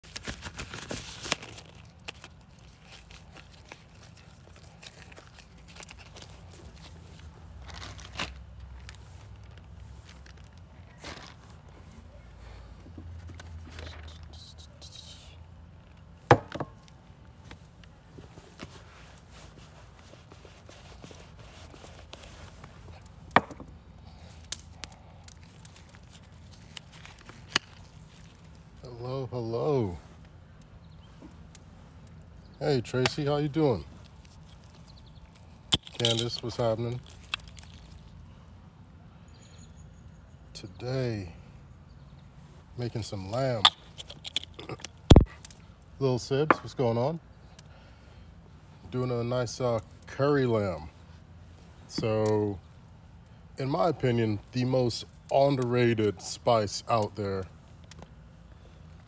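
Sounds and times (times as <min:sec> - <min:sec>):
low steady hum: 0:00.0 - 0:59.0.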